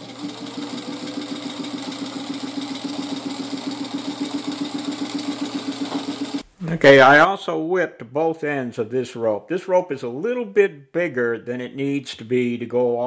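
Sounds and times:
sewing machine running: 0.0 - 6.4.

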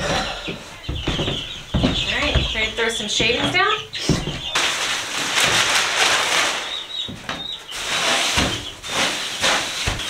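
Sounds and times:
chicks peeping: 0.0 - 10.0
wood shavings rustling: 4.0 - 10.0.

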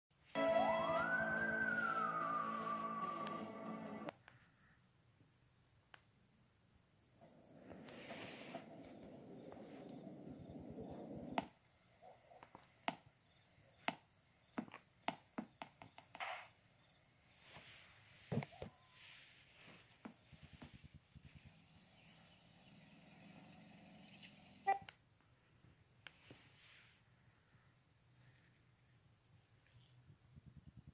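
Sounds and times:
cartoon cricket chirping: 6.9 - 21.3.

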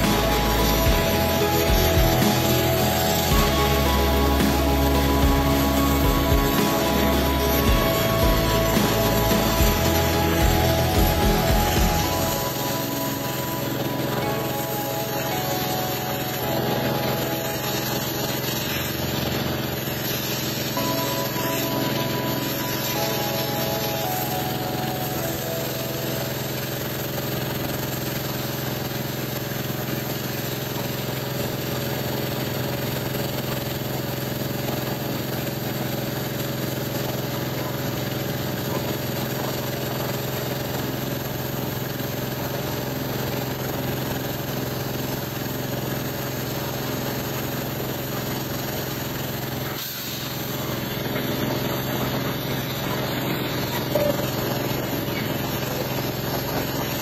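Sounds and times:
pressure washer motor humming: 0.0 - 57.0
water jet spraying on metal: 0.0 - 57.0.

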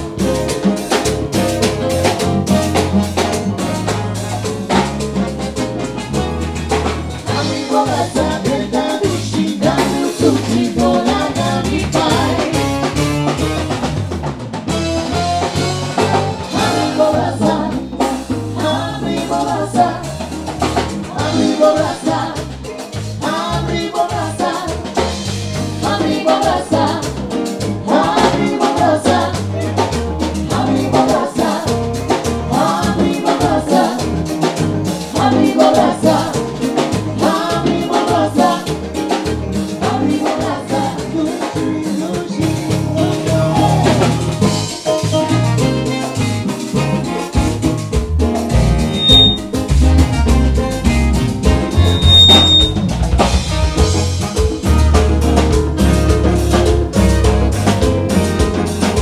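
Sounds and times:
live band playing upbeat song: 0.0 - 59.0
woman singing: 7.3 - 12.8, 16.6 - 20.1, 21.1 - 25.0, 25.8 - 27.2, 27.8 - 29.4, 30.5 - 31.8, 35.2 - 36.5, 37.2 - 38.8, 39.8 - 44.1
man singing: 40.9 - 44.2.

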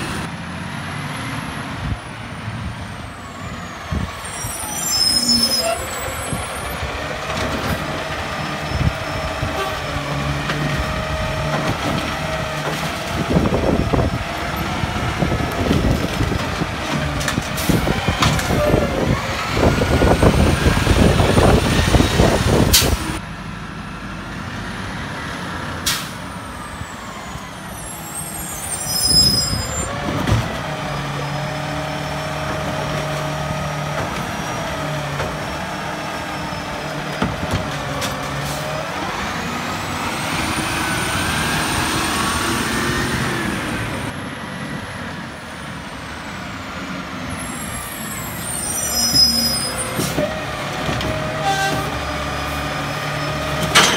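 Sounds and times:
garbage truck engine revving: 5.3 - 23.2, 29.6 - 44.2.

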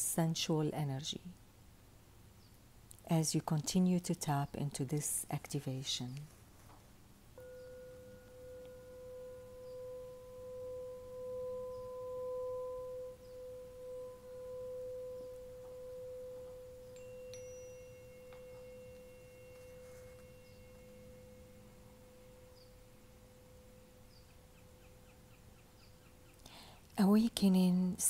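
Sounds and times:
higher ring: 7.4 - 26.2
tuning fork ringing: 7.4 - 26.7.

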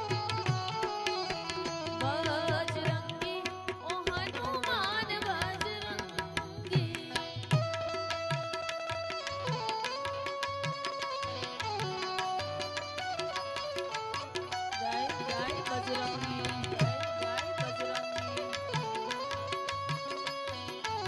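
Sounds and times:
harmonium chords: 0.0 - 10.5
tabla rhythm: 0.0 - 21.0.

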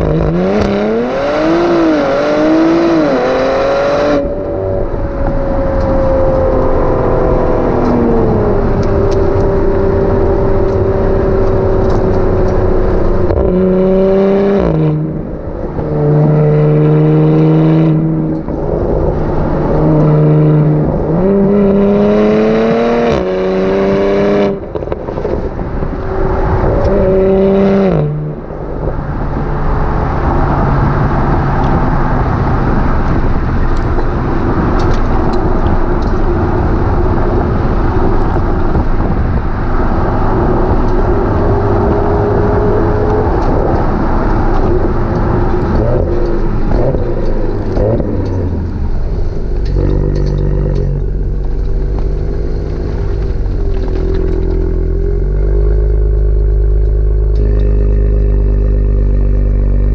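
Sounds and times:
car engine at speed: 0.0 - 59.9
tyre noise: 0.0 - 59.9
wind noise: 0.0 - 59.9
car engine idling: 42.2 - 58.0.

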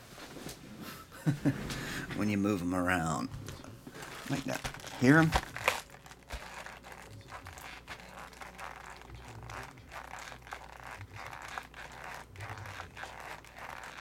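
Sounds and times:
foil packs crinkling in a box: 3.9 - 14.0.

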